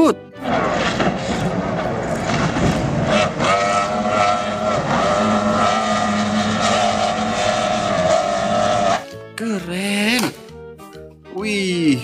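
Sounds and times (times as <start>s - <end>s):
outboard engines droning: 1.5s - 9.0s.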